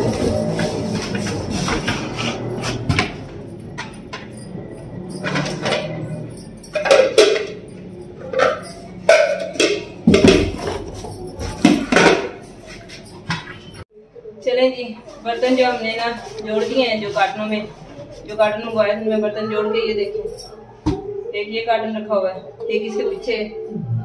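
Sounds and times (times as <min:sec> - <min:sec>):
plates and bowls clattering: 0:00.0 - 0:13.8.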